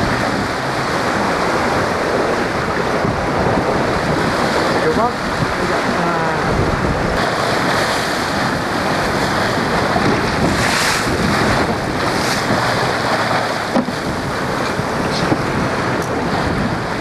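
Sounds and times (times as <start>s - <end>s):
water rushing along hull: 0.0s - 17.0s
wind buffeting microphone: 0.0s - 17.0s.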